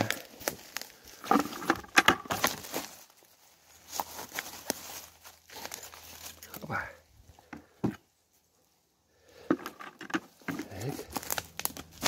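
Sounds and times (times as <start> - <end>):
dry leaves and twigs crackling: 0.0 - 12.0.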